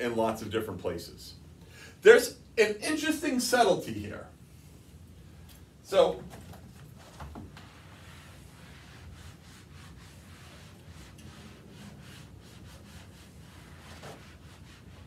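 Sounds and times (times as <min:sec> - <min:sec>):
eraser scrubbing whiteboard: 0:07.0 - 0:15.0.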